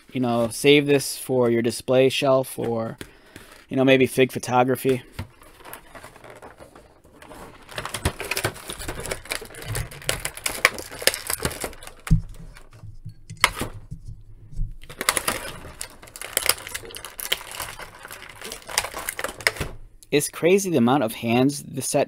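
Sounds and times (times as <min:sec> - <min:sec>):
plastic blister tray crackling: 0:02.6 - 0:20.1.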